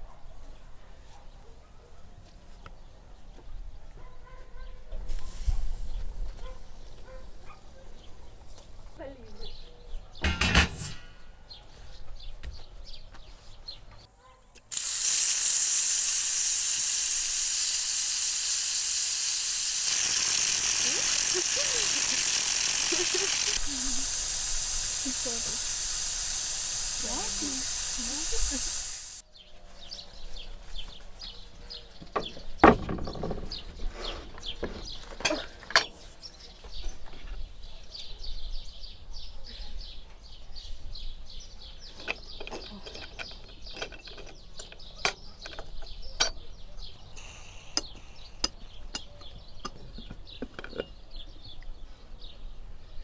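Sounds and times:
small birds chirping: 0.0s - 14.8s, 20.0s - 25.8s, 27.0s - 53.0s
metal pot clunks and clicks: 10.2s - 11.2s.

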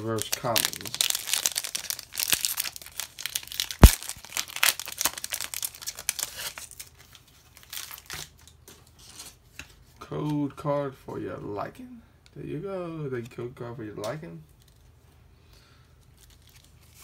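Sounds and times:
foil wrapper crinkling: 0.0s - 8.6s, 16.1s - 17.0s
sharp crack: 3.6s - 4.4s.

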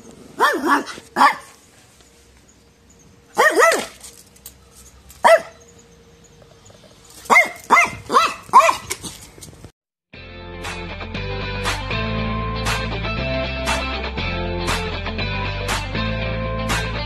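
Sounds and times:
small dog yapping: 0.4s - 1.6s, 3.4s - 4.0s, 5.2s - 5.6s, 7.2s - 9.2s
music: 10.1s - 17.0s.

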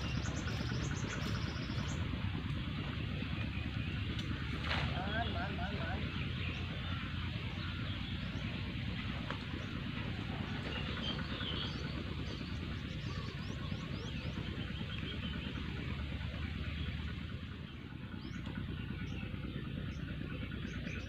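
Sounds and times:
low outdoor rumble: 0.0s - 21.0s
small birds chirping: 0.0s - 21.0s.

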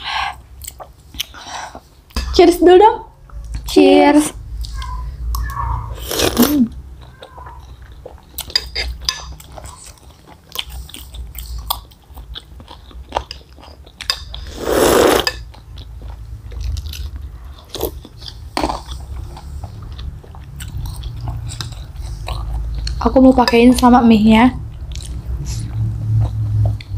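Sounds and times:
slurp of broth: 6.0s - 6.6s, 14.4s - 15.4s
chewing and biting: 6.0s - 14.2s, 15.5s - 23.1s.

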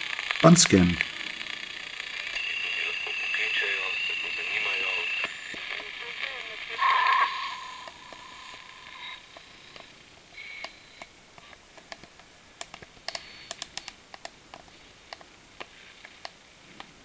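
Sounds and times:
radio static crackles: 0.0s - 12.1s
faint hiss: 0.0s - 17.0s
high radio whistles: 1.9s - 9.8s.

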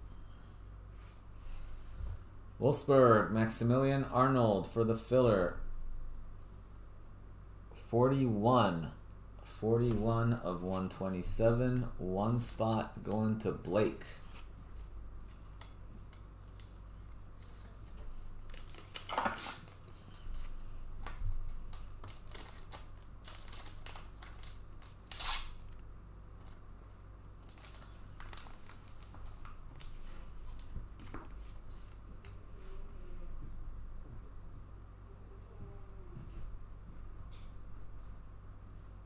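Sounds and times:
plastic sleeves crinkling: 14.2s - 32.4s.

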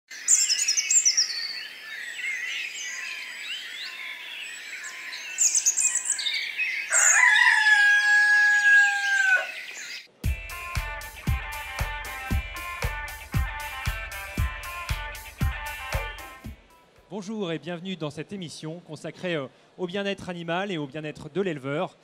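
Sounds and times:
small birds chirping: 0.1s - 7.0s
rooster crowing: 6.9s - 9.7s.

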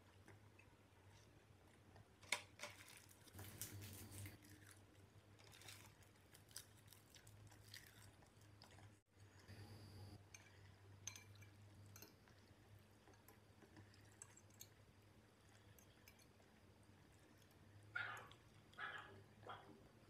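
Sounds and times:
close-up chewing: 3.2s - 9.1s.

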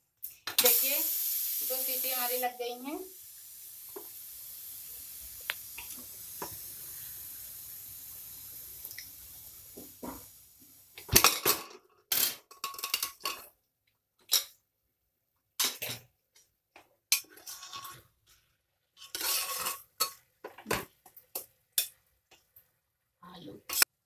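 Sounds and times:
pressure cooker steam hiss: 0.2s - 11.2s.

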